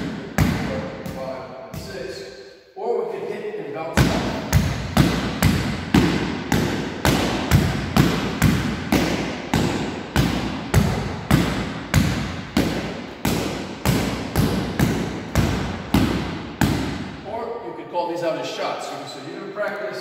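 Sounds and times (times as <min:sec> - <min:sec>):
blade striking punching bag: 0:04.0 - 0:17.2.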